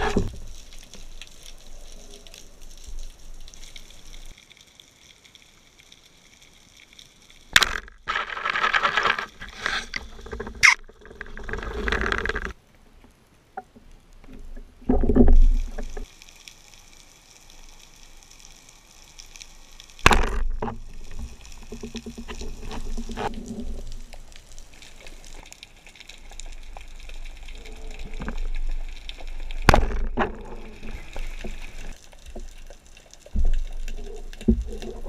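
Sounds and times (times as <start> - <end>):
water sloshing and rushing: 20.0 - 35.0.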